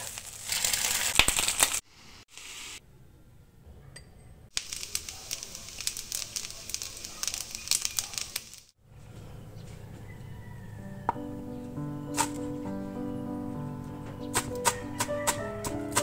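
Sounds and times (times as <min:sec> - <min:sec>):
rice sizzling in a frying pan: 0:00.0 - 0:02.8, 0:04.5 - 0:08.8.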